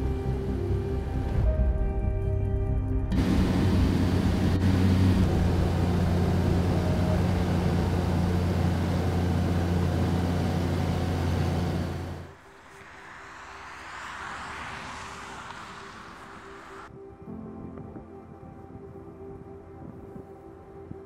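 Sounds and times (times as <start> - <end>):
propeller aircraft engine drone: 3.0 - 16.9
vehicle passing by: 3.1 - 16.9.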